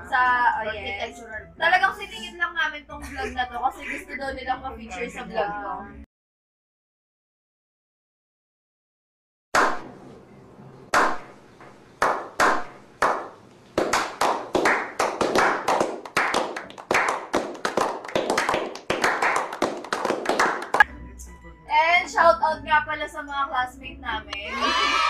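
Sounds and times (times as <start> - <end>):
people clapping: 10.9 - 11.2, 12.0 - 20.9.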